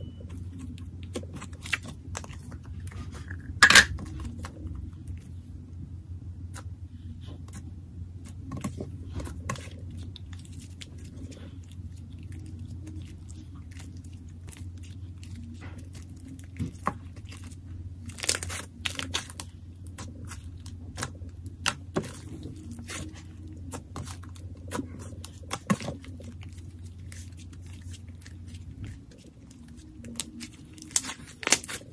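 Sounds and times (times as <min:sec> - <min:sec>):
slime squished by hand: 0:08.2 - 0:31.9.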